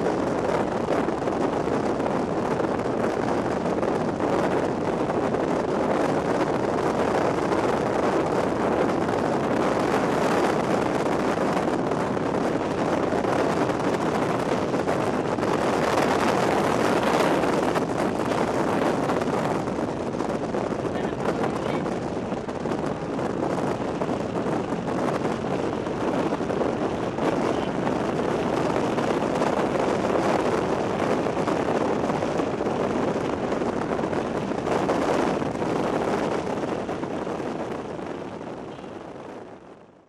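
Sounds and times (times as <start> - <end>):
strong wind on microphone: 0.0 - 40.0.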